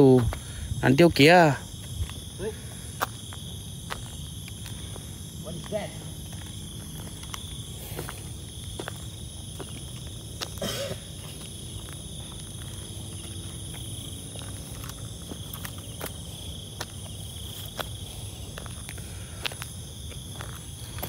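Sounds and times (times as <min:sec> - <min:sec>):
insects trilling: 0:00.0 - 0:21.0.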